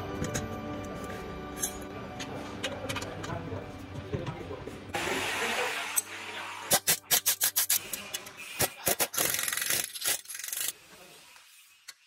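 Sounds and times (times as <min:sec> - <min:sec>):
background music: 0:00.0 - 0:07.7
ratcheting wrench clicking: 0:06.7 - 0:08.0, 0:08.8 - 0:10.8.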